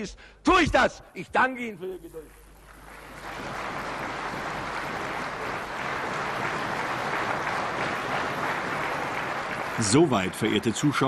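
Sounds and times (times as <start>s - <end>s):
crowd applauding: 2.2s - 11.0s.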